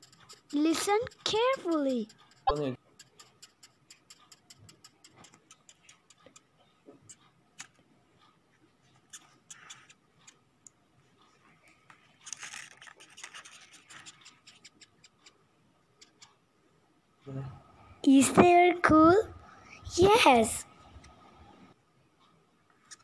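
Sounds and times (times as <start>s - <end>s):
beetle clicking and rasping: 0.0s - 7.8s, 9.0s - 10.4s, 12.2s - 15.4s.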